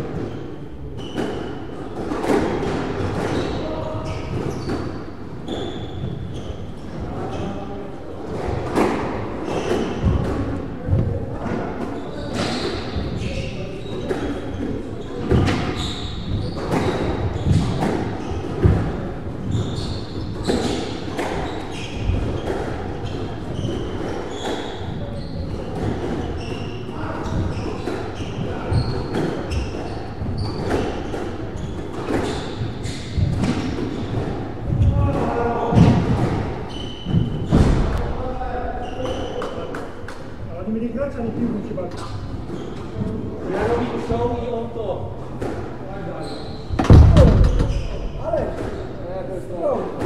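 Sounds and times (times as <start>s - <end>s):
shoes squeaking on wooden floor: 0.0s - 7.6s, 8.4s - 38.0s, 41.9s - 49.1s
ball thudding against walls: 46.7s - 48.8s.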